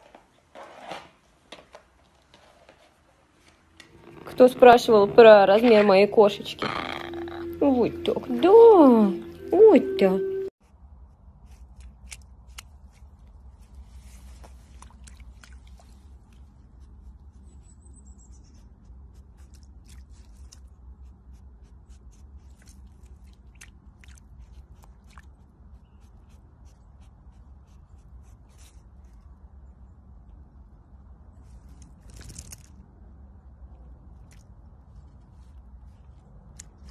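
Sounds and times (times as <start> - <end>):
animal chewing with sharp crunches: 18.6 - 29.1.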